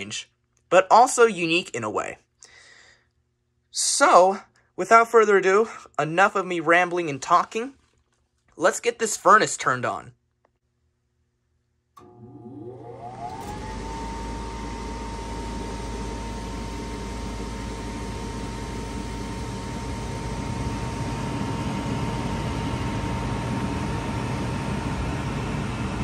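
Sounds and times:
furnace inducer motor whine: 12.0s - 26.0s.

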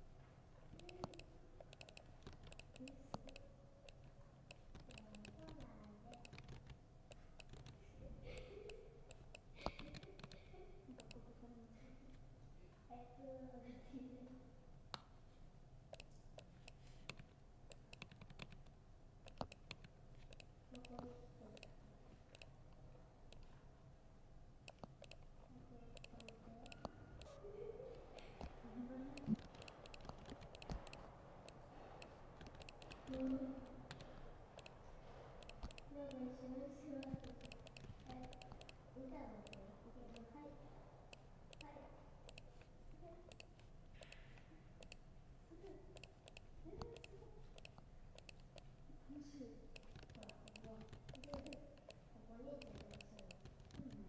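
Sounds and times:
laptop keyboard typing: 0.7s - 11.2s, 15.9s - 22.7s, 24.7s - 25.3s, 25.9s - 27.4s, 28.0s - 36.2s, 36.9s - 40.3s, 42.3s - 42.7s, 43.3s - 45.0s, 45.9s - 48.8s, 49.7s - 54.0s.

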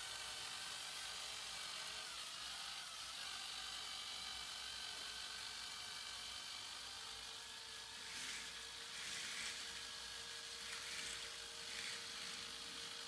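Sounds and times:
toy train rushing along track: 0.0s - 1.1s, 6.7s - 13.0s.

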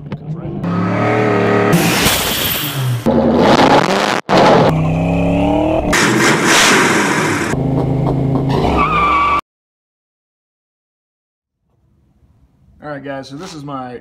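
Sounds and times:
car engine revving: 0.3s - 8.8s.

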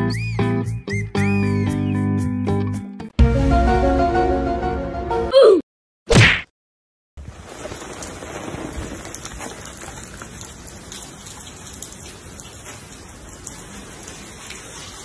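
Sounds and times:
rain on wet paving: 7.2s - 15.0s.

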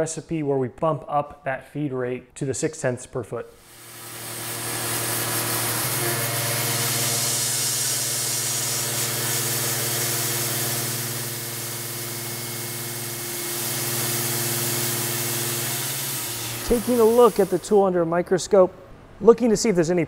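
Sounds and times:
coolant spray hissing: 3.6s - 17.8s
mill spindle humming: 3.7s - 19.2s.

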